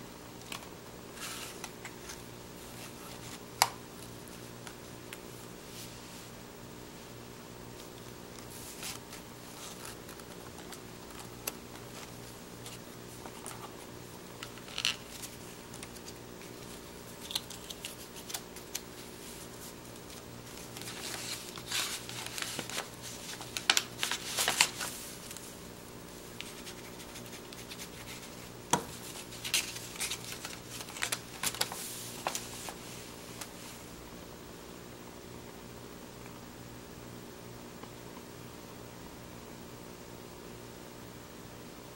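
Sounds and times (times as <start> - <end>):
faint steady hum: 0.0 - 41.9
paper scrapes and rustles: 1.1 - 3.4, 8.5 - 25.4, 26.4 - 33.8.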